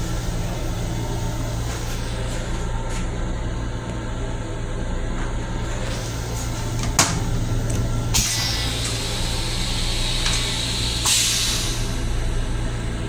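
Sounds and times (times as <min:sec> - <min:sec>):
rail car hum: 0:00.0 - 0:13.0
toilet flush hiss: 0:08.1 - 0:12.2.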